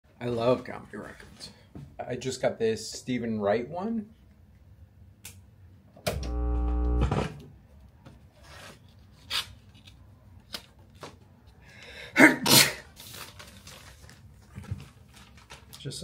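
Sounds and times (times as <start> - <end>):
low buzz: 6.1 - 7.5.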